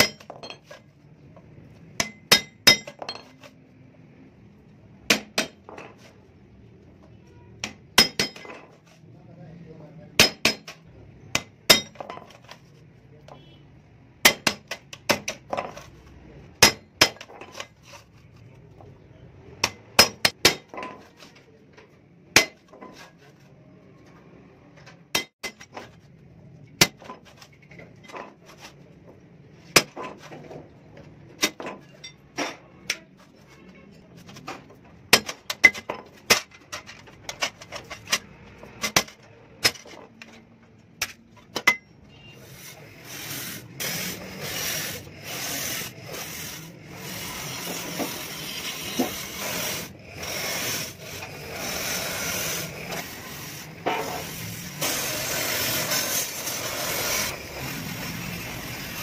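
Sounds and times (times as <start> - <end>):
hammer striking chisel on metal: 0.0 - 0.8, 2.0 - 3.6, 5.1 - 5.9, 7.6 - 8.8, 10.2 - 12.4, 14.2 - 15.7, 16.6 - 17.7, 19.6 - 21.1, 22.3 - 22.8, 25.1 - 25.7, 35.1 - 36.5, 41.0 - 41.9.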